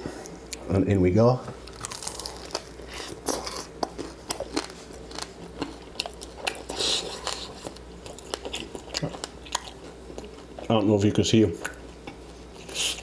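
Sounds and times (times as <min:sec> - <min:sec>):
chewing crunches: 0:01.6 - 0:10.8.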